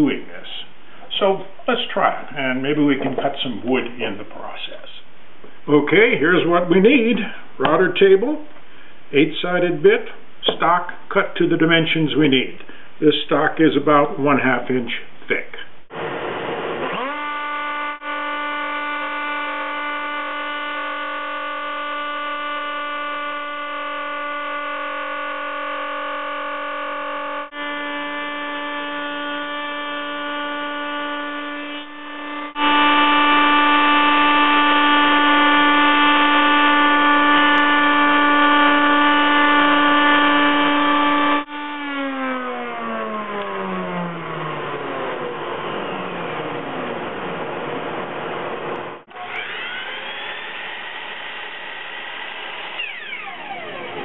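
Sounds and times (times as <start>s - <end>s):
miter saw motor starting: 15.9s - 54.0s
router whining: 15.9s - 54.0s
router winding down: 15.9s - 54.0s.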